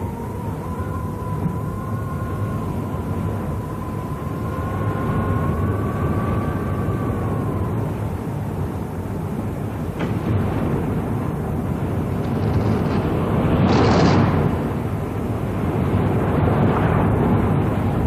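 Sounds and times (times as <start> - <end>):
wavering high tone: 0.0 - 10.0
raging water torrent roar: 0.0 - 18.0.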